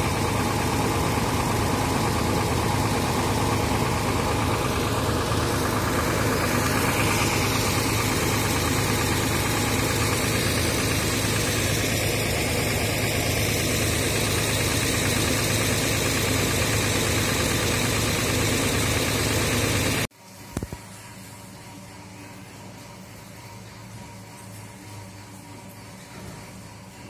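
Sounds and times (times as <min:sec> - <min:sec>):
diesel bus engine idling: 0:00.0 - 0:20.1.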